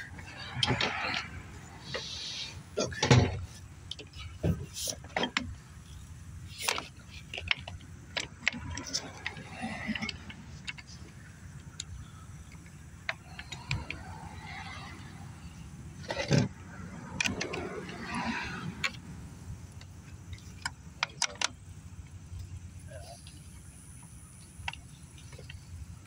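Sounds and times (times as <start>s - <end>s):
metal parts clicking and knocking: 3.0s - 14.8s, 19.8s - 21.6s.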